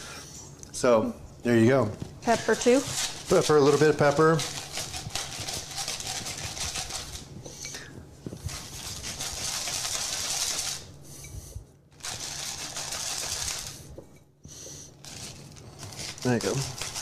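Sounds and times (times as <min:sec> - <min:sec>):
pepper grinder grating peppercorns: 0:02.3 - 0:11.0, 0:11.9 - 0:14.0, 0:14.9 - 0:17.0.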